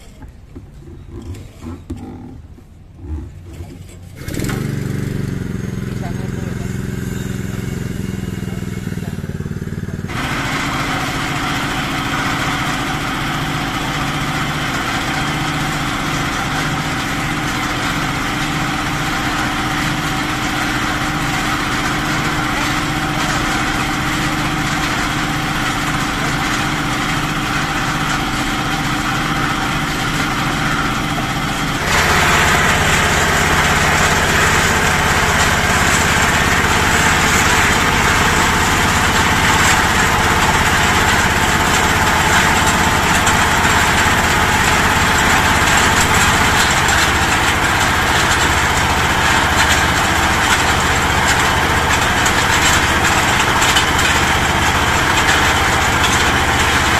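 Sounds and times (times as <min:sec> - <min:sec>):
small engines running: 0:00.0 - 0:56.9.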